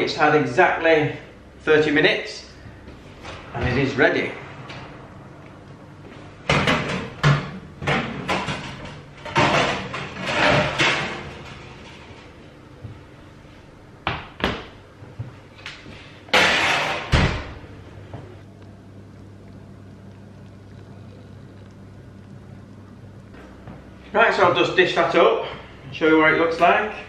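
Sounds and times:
oven door banging shut: 16.3s - 17.6s.

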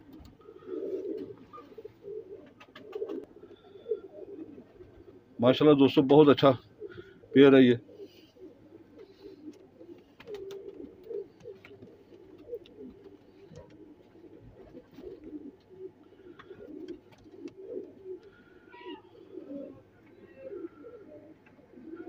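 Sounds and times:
pigeons cooing: 0.0s - 5.8s, 6.4s - 22.0s
faint clicks: 9.5s - 13.8s.

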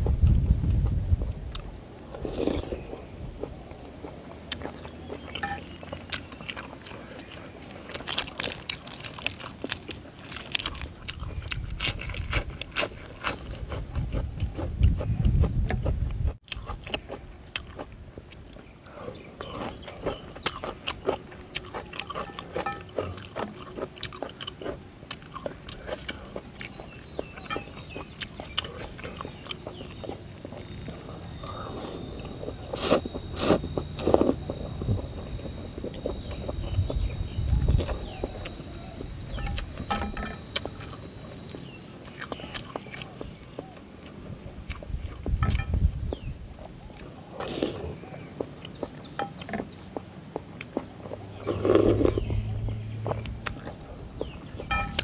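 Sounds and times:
chewing and slurping noodles: 1.5s - 38.6s, 50.6s - 54.4s.

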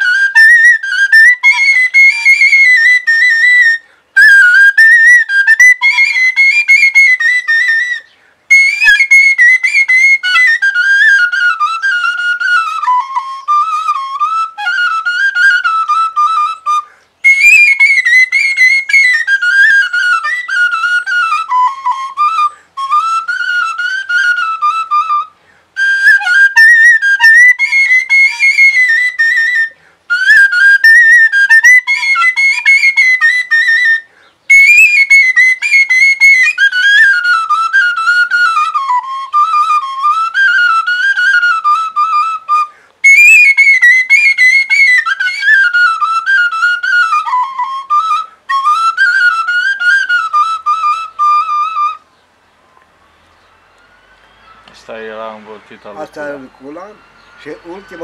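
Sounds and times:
wooden flute folk melody: 0.0s - 58.0s.

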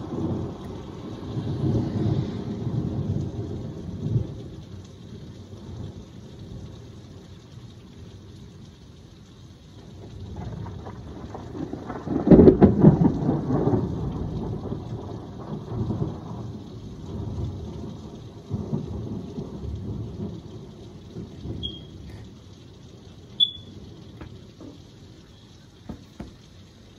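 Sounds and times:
thunder rolling: 0.0s - 4.6s, 10.0s - 22.3s
heavy rain: 0.0s - 26.9s.

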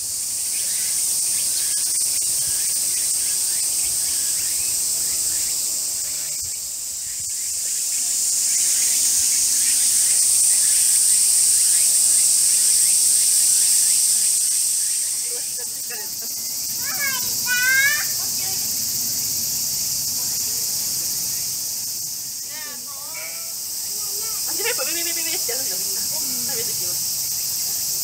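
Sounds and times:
cicadas droning: 0.0s - 28.0s.

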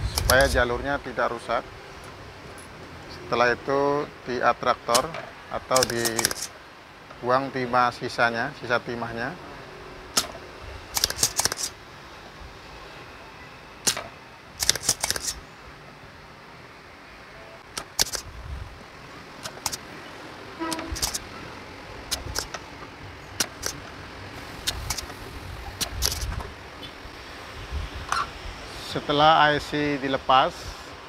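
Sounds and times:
solder sucker clicking: 22.1s - 22.6s, 24.6s - 25.2s.

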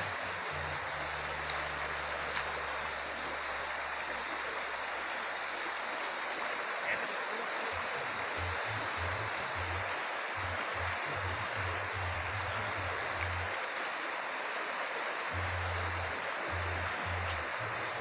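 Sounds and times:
faint low hum: 0.0s - 14.5s, 15.1s - 18.0s
river water rushing: 0.0s - 18.0s.

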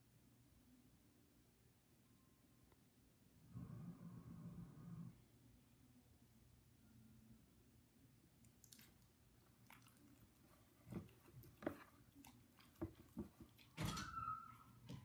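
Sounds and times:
dog licking and smacking mouth: 8.4s - 13.8s.

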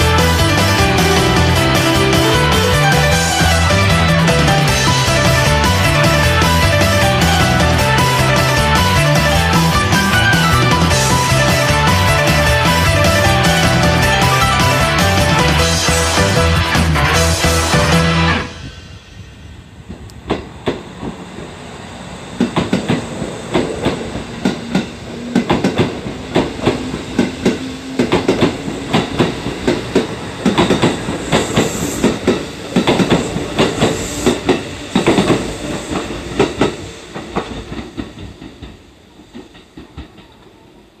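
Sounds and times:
train wheels clattering: 0.0s - 40.6s
train rumble: 0.0s - 41.0s.

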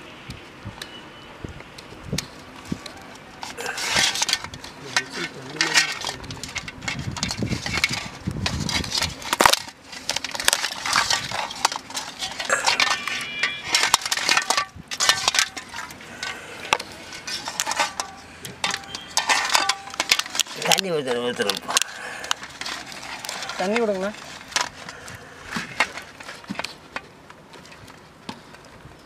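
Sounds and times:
crab shell cracking: 8.7s - 25.2s.

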